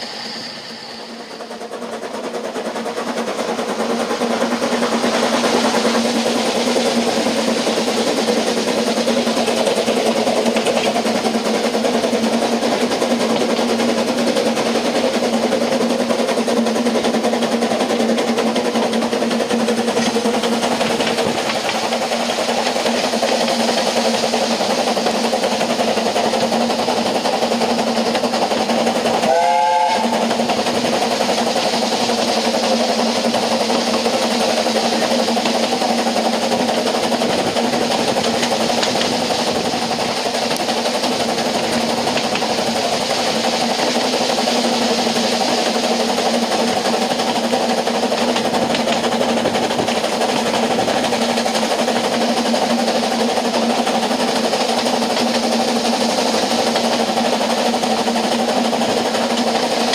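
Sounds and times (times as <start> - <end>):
train coach rumbling and rattling: 0.0 - 59.9
steam locomotive whistle toot: 29.2 - 30.3.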